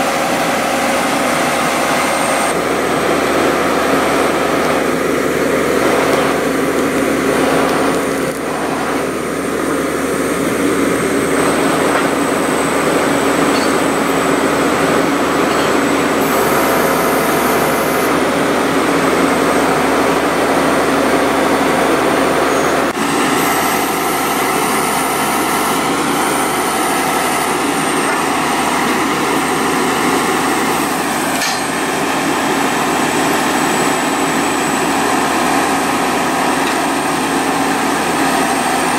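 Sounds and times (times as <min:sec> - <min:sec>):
drilling rig engine running: 0:00.0 - 0:38.9.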